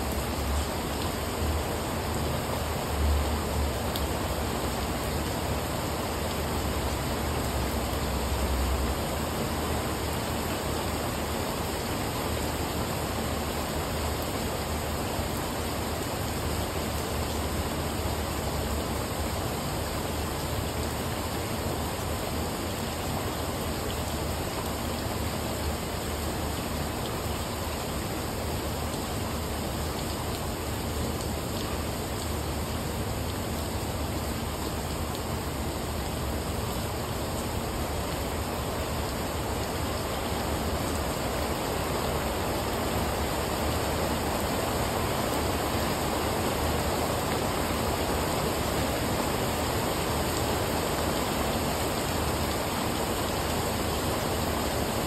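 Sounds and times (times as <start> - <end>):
rain falling on patio: 0.0 - 55.0.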